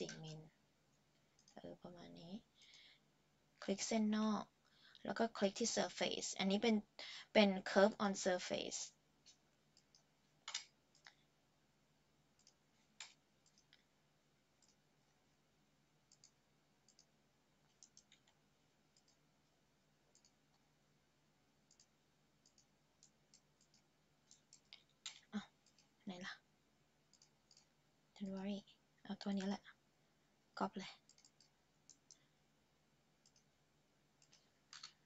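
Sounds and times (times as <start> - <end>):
computer mouse clicks: 0.0 - 0.4, 1.2 - 1.6, 9.2 - 11.2, 12.3 - 13.9, 14.6 - 14.8, 16.0 - 19.3, 20.1 - 20.7, 21.6 - 26.0, 27.1 - 28.4, 31.0 - 32.3, 33.2 - 33.5, 34.2 - 35.0.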